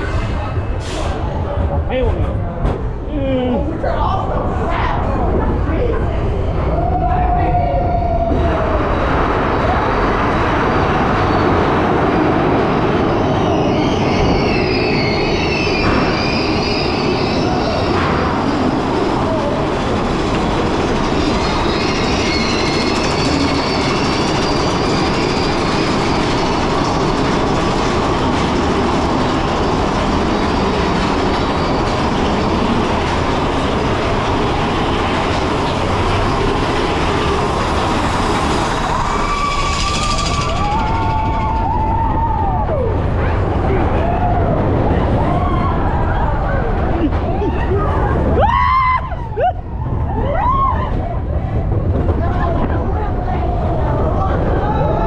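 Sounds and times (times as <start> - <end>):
roller coaster cars rumbling: 0.0 - 55.0
wheels squealing: 8.2 - 51.0.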